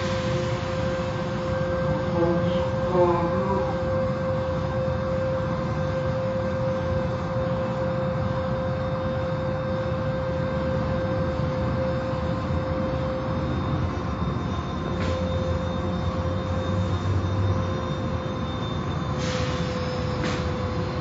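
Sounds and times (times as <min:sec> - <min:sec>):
car wash machinery rushing: 0:00.0 - 0:04.7
constant whine: 0:00.0 - 0:21.0.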